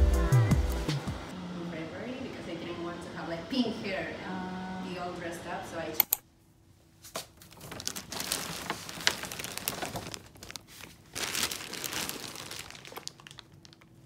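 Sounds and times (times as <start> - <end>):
plastic bags crinkling: 7.3 - 14.0.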